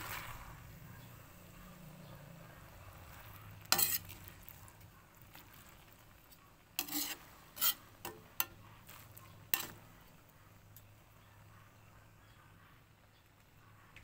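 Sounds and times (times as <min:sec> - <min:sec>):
noodles stir-frying in metal pan: 0:00.0 - 0:12.2
utensil scraping and clanking pan: 0:03.6 - 0:04.6, 0:06.2 - 0:10.2.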